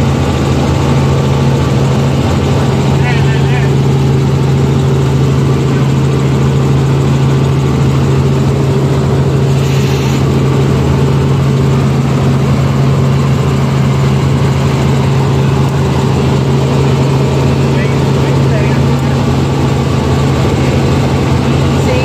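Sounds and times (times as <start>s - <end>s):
helicopter rotor and engine drone: 0.0s - 22.0s.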